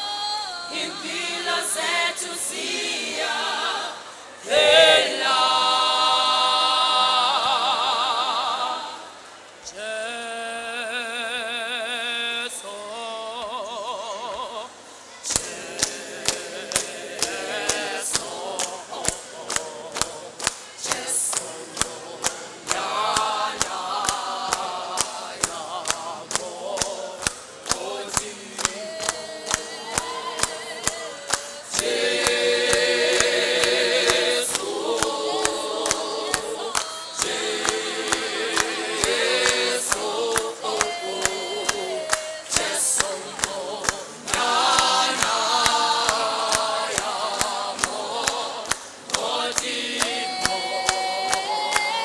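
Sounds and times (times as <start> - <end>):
choir singing a cappella: 0.0 - 52.0
hand-clapping: 15.3 - 52.0.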